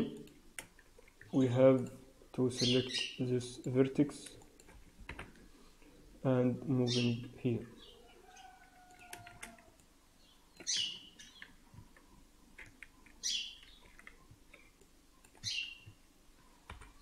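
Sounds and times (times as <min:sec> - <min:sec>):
bird chirping: 0:02.4 - 0:03.3, 0:06.8 - 0:09.6, 0:10.2 - 0:12.2, 0:12.9 - 0:14.7, 0:15.4 - 0:17.0.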